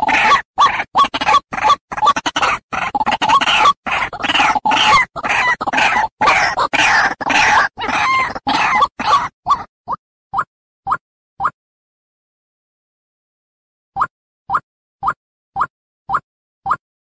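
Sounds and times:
waterhen calling harsh notes: 0:00.0 - 0:09.7.

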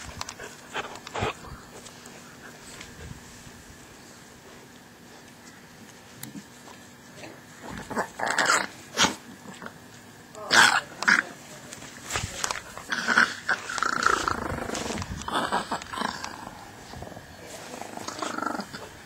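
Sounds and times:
puppies growling: 0:00.0 - 0:02.8, 0:07.6 - 0:09.8, 0:12.4 - 0:19.0.

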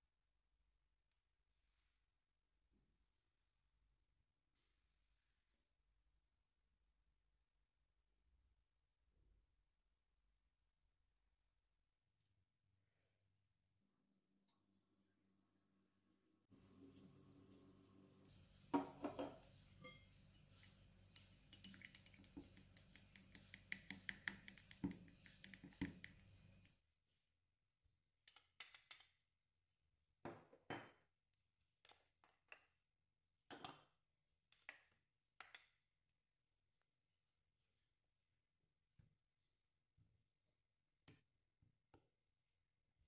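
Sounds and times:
wooden spoon on ceramic dishes: 0:18.6 - 0:26.6
spoon clinking in glass: 0:19.0 - 0:20.1.

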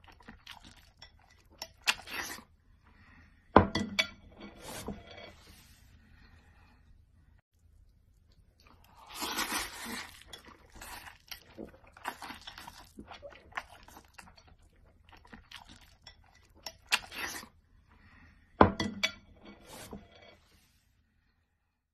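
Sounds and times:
biting and chewing food: 0:00.0 - 0:02.5, 0:08.2 - 0:17.6.

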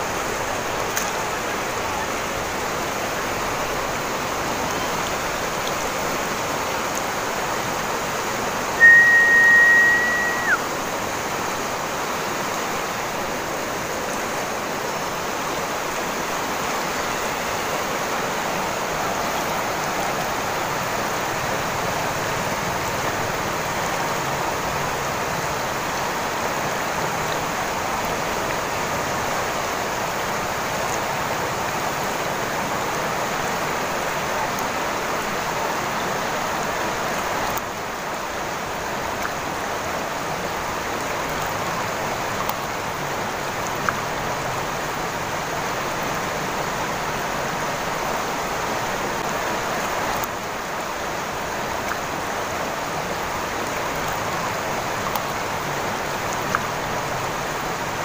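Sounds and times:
river rushing over rocks: 0:00.0 - 0:58.0
high whistle-like tone: 0:08.8 - 0:10.6.

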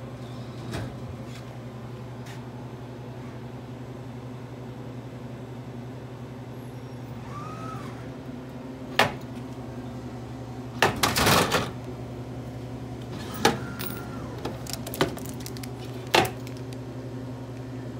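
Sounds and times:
vending machine hum: 0:00.0 - 0:17.9
motor whines: 0:06.8 - 0:08.1, 0:13.0 - 0:14.5.

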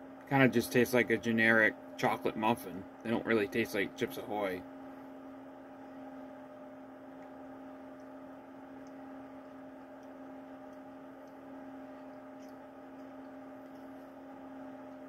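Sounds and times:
electrical hum: 0:00.0 - 0:15.0
faint clicks: 0:07.2 - 0:14.2.

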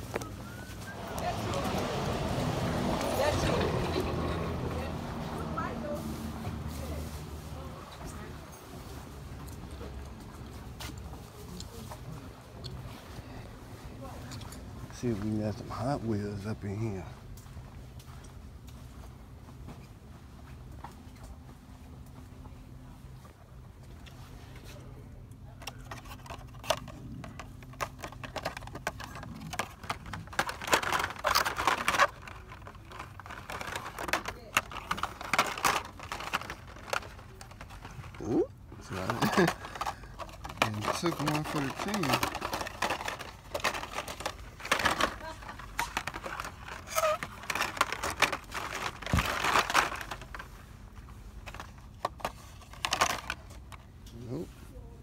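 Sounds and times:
blister-pack cards clicking and rattling: 0:25.7 - 0:38.1, 0:38.9 - 0:50.4.

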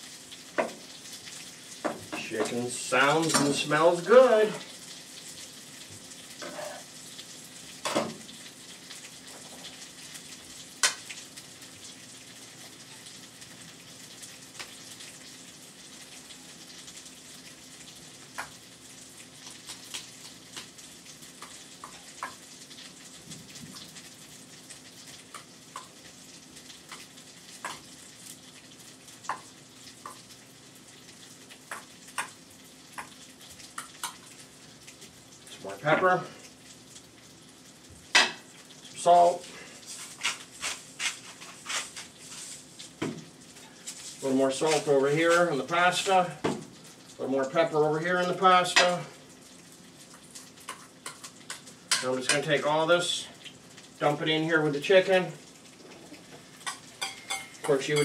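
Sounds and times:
chicken sizzling in a pan: 0:00.0 - 0:58.0
spoon stirring in metal bowl: 0:56.6 - 0:58.0.

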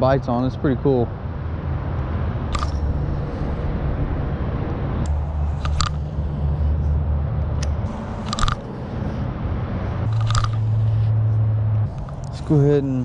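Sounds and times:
steady low rumble: 0:00.0 - 0:13.0
fishing reel clicks and rattles: 0:05.5 - 0:06.2, 0:08.2 - 0:08.7, 0:10.1 - 0:10.7.

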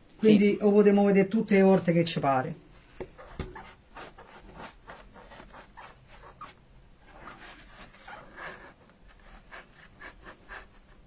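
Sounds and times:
tool scratching felt: 0:02.9 - 0:11.0.

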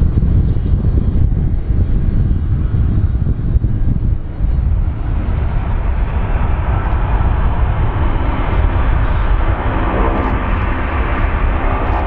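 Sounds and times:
jet engines rumbling: 0:00.0 - 0:12.0.

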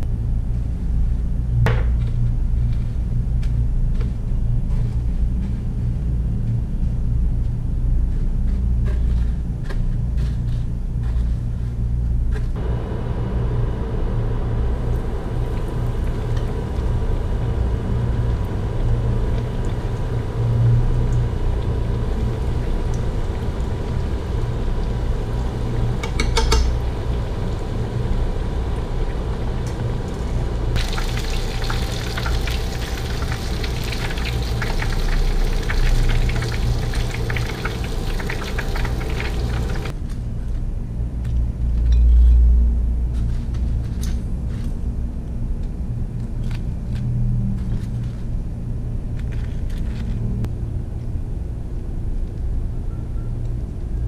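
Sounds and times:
steady low rumble: 0:00.0 - 0:54.0
squid deep-frying in oil: 0:12.7 - 0:40.0.

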